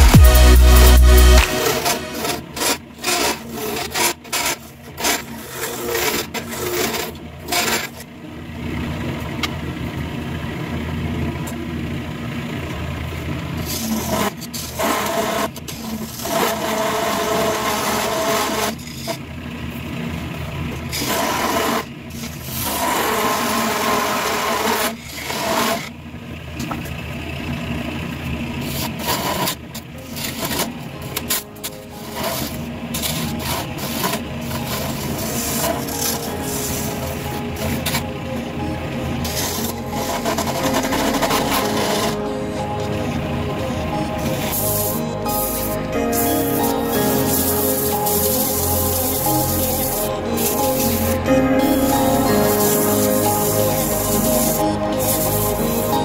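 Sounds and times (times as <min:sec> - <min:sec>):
lathe gouge scraping hiss: 0:32.0 - 0:38.0, 0:44.2 - 0:56.0.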